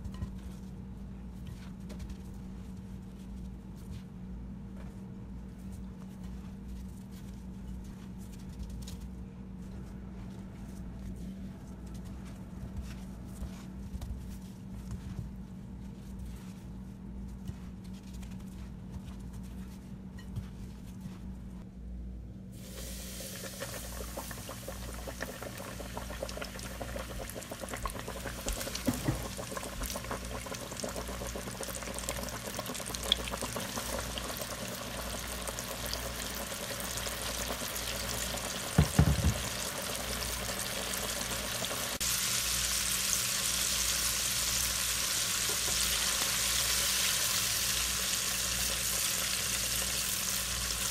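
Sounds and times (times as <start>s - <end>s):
fish deep-frying in oil: 22.6s - 50.9s.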